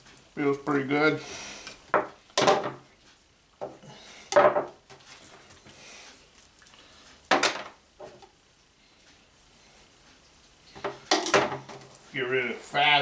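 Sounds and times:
metal baking sheet clattering on wood: 0:01.9 - 0:02.8, 0:04.3 - 0:04.8, 0:10.8 - 0:11.9.

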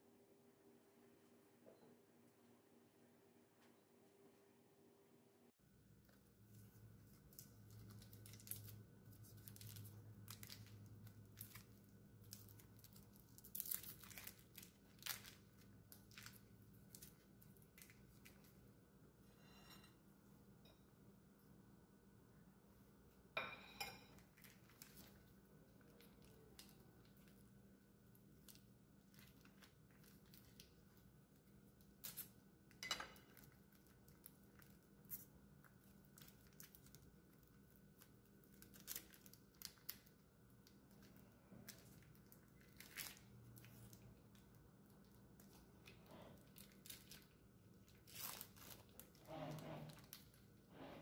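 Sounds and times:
packaging crinkling and tearing: 0:07.0 - 0:18.6, 0:24.3 - 0:32.4, 0:33.3 - 0:50.6.

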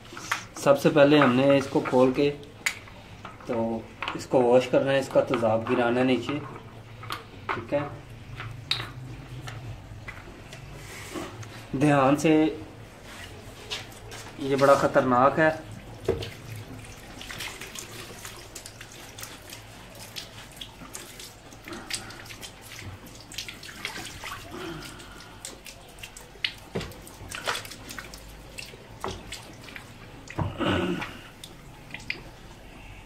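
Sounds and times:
dripping: 0:00.0 - 0:33.0
liquid splashing onto tiled floor: 0:05.0 - 0:10.7, 0:13.4 - 0:32.7.

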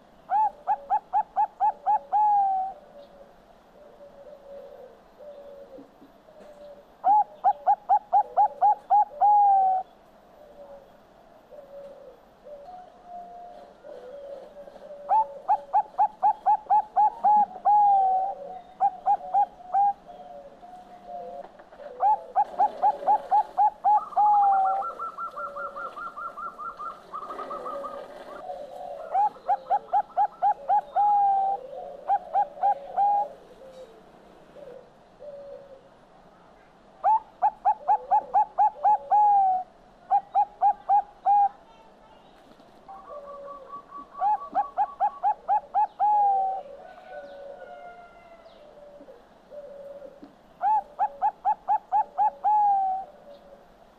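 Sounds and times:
dove cooing: 0:00.0 - 0:36.0, 0:37.0 - 0:41.8, 0:42.8 - 0:53.9.

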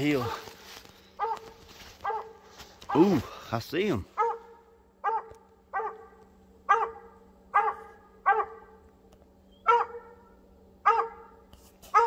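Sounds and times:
dog barking: 0:01.2 - 0:03.2, 0:04.2 - 0:08.8, 0:09.6 - 0:12.0.

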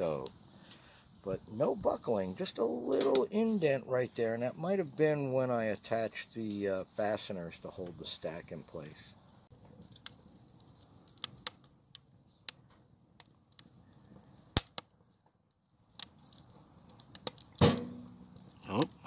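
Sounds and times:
wood fire crackling in stove: 0:00.0 - 0:19.0
loud pop with brief ring: 0:17.6 - 0:18.1.

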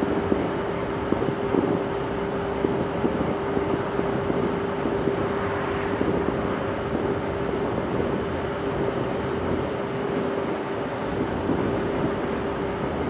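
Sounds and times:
rushing background noise: 0:00.0 - 0:13.0
steady tonal hum: 0:02.0 - 0:09.7.

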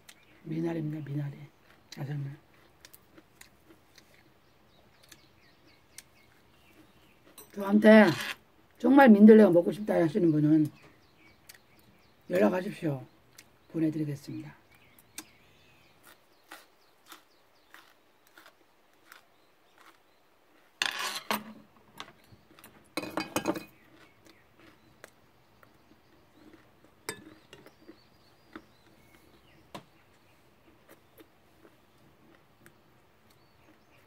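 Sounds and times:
chewing: 0:01.5 - 0:07.6, 0:11.3 - 0:11.9, 0:13.3 - 0:13.6, 0:14.7 - 0:20.8, 0:22.2 - 0:23.0, 0:23.6 - 0:34.0.

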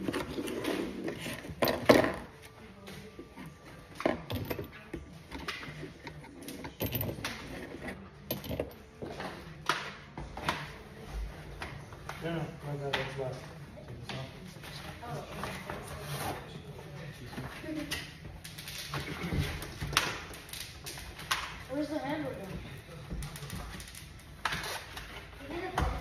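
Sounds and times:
knocks and rattles of handled parts: 0:03.9 - 0:09.2.

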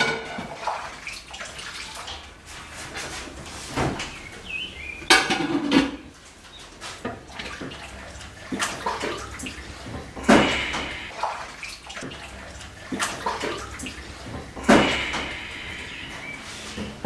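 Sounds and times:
loud water splashes: 0:00.0 - 0:03.0, 0:07.2 - 0:16.8
water sloshing in a sink: 0:00.0 - 0:17.0.

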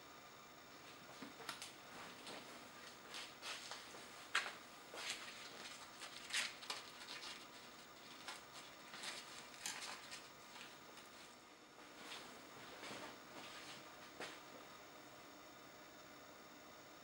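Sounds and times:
soft clicks and rustles: 0:01.1 - 0:11.3.

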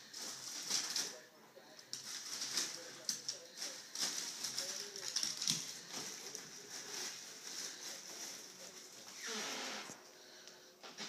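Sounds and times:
plastic bag crinkling: 0:01.9 - 0:09.2.

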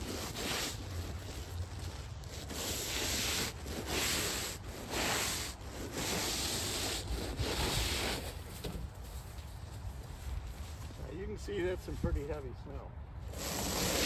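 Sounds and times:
snow pusher scraping asphalt: 0:00.0 - 0:09.2, 0:13.2 - 0:14.0.

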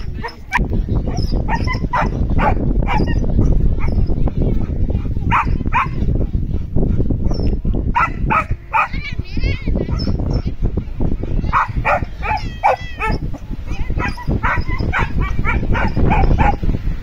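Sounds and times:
low rumbling noise: 0:00.0 - 0:17.0
dog barking: 0:00.2 - 0:04.0, 0:05.3 - 0:06.0, 0:07.9 - 0:09.0, 0:11.5 - 0:16.6.

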